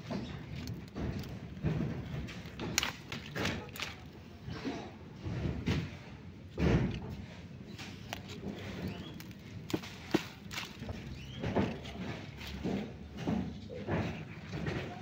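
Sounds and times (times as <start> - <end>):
dull thumps of plants pulled: 0.2 - 4.1, 6.6 - 14.2
leaves rustling: 7.8 - 11.1.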